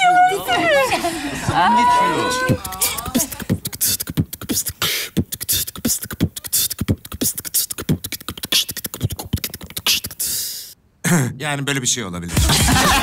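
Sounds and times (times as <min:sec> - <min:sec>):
person beatboxing: 0:02.3 - 0:10.8.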